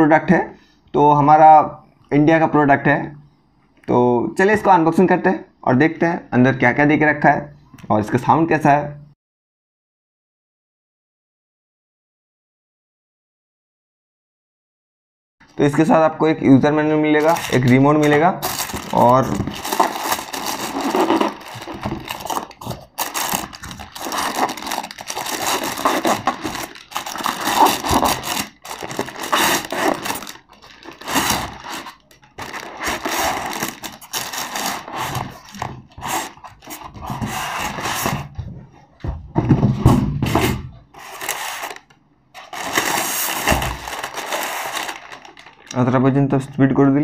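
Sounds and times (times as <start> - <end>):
cardboard and styrofoam scraping: 17.2 - 38.4, 39.5 - 45.6.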